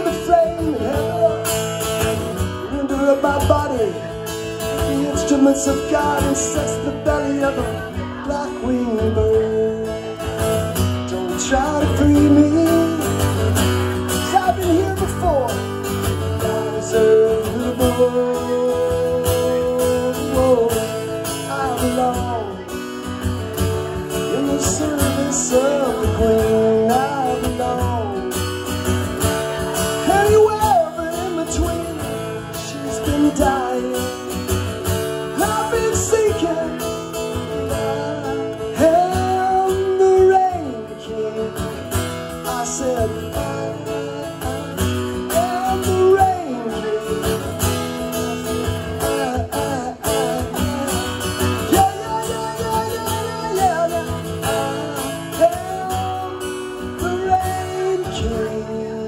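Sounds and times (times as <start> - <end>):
person singing wordless lines: 0.0 - 59.0
strummed acoustic guitar: 0.0 - 59.0.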